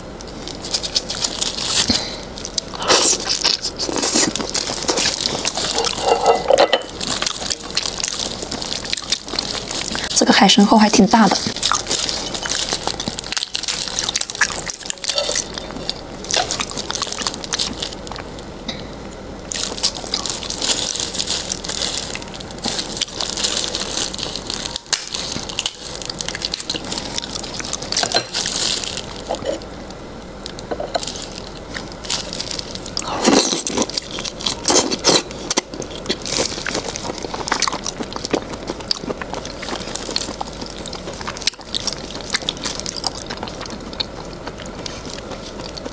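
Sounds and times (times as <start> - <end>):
shrimp shell cracking and peeling: 19.5 - 29.4.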